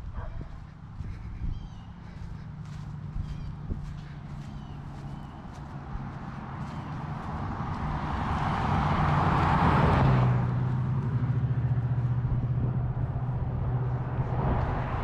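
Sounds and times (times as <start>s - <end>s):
vehicle approaching: 0.0s - 15.0s
car passing by: 4.0s - 15.0s.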